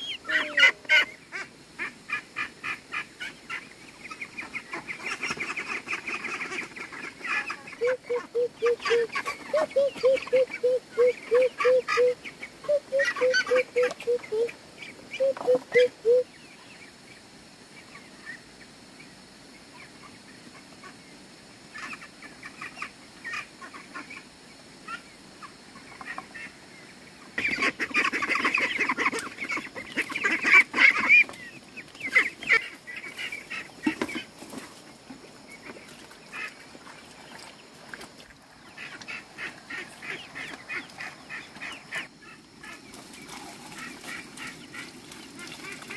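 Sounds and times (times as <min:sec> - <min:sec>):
ducks quacking: 0:00.0 - 0:16.2, 0:27.4 - 0:31.4, 0:32.0 - 0:34.4, 0:38.6 - 0:45.9
chickens: 0:00.0 - 0:16.8, 0:21.7 - 0:45.9
birds calling over one another: 0:06.8 - 0:16.4.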